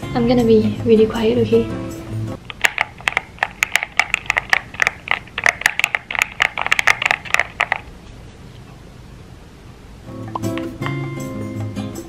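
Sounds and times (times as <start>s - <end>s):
mechanical keyboard typing: 2.4s - 7.9s.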